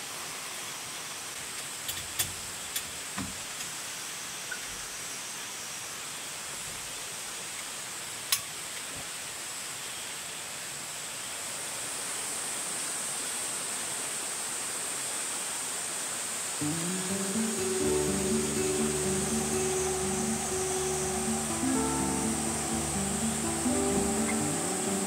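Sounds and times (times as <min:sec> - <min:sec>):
rushing outdoor ambience: 0:16.6 - 0:25.0.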